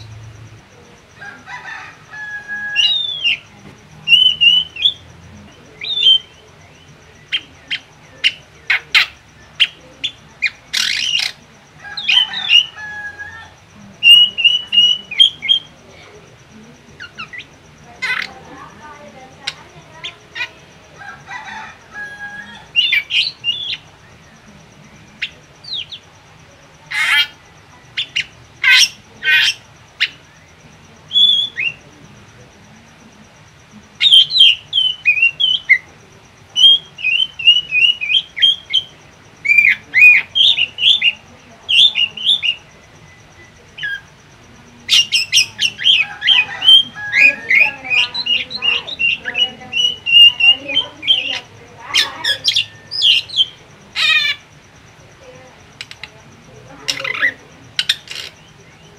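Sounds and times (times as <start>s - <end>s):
bird chirping and squawking: 1.6s - 3.5s, 4.1s - 5.1s, 7.2s - 15.8s, 16.9s - 18.8s, 19.4s - 24.0s, 26.9s - 30.3s, 36.6s - 44.3s, 44.9s - 54.6s, 56.8s - 58.9s.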